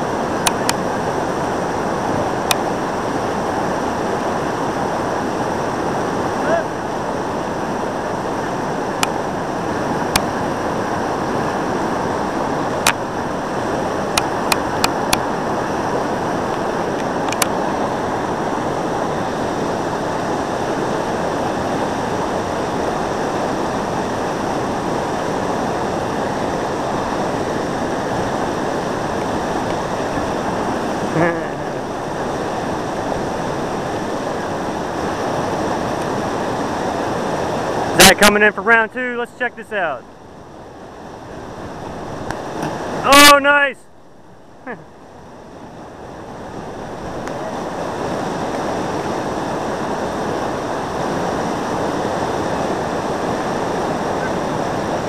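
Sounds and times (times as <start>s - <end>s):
whitewater rapid roaring: 0.0s - 55.0s
person shouting: 6.4s - 6.8s, 38.4s - 40.0s, 43.0s - 43.8s.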